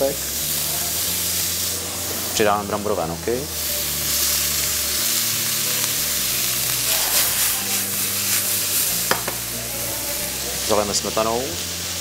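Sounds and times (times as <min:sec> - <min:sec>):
food sizzling in hot oil: 0:00.0 - 0:12.0
wok clatter: 0:05.2 - 0:09.6.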